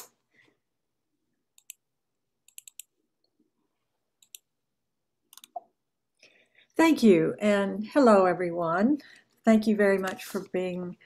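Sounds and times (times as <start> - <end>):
computer mouse clicking: 1.6 - 1.8, 2.4 - 2.9, 4.2 - 4.5, 5.3 - 5.6.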